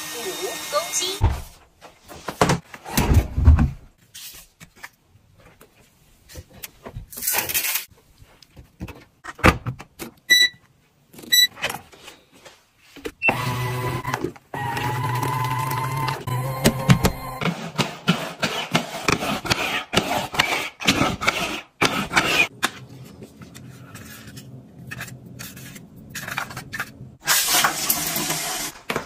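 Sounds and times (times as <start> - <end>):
short electronic beeps: 10.3 - 10.6.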